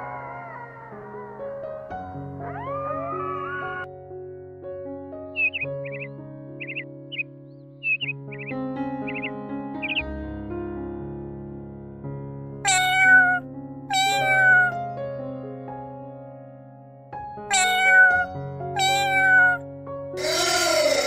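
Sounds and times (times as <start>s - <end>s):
kitten meowing: 0.0s - 3.9s, 12.7s - 14.8s, 17.5s - 19.6s, 20.2s - 21.0s
soft piano music: 0.0s - 21.0s.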